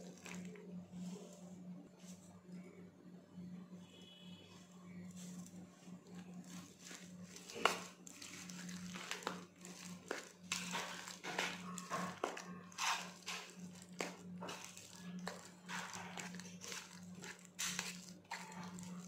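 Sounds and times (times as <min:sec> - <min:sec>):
spoon scraping a bowl: 0:10.1 - 0:19.0.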